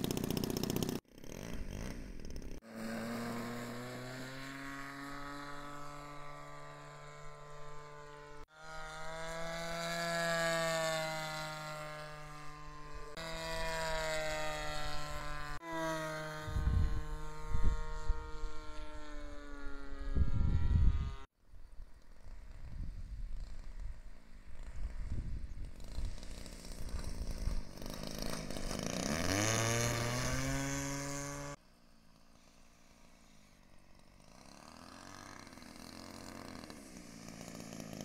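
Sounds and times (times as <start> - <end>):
model plane engine buzzing: 0.0 - 38.0.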